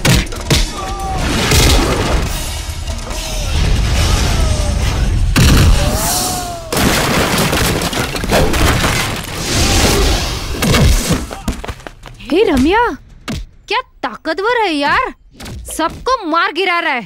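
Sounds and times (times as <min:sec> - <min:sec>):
heavy booming hits: 0:01.4 - 0:07.2.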